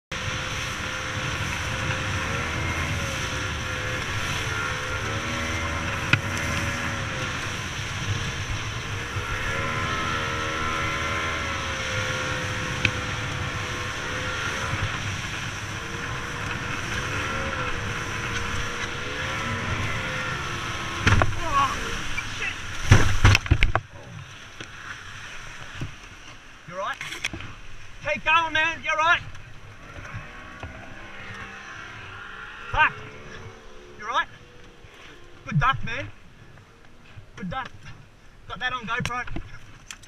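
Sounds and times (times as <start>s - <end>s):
outboard motor running hard: 0.1s - 26.0s
wind and water rushing: 0.1s - 40.0s.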